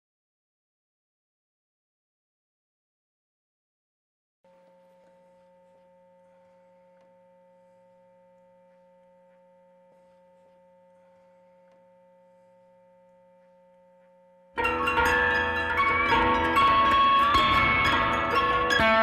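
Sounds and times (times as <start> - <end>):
loud guitar playing: 14.6 - 19.0.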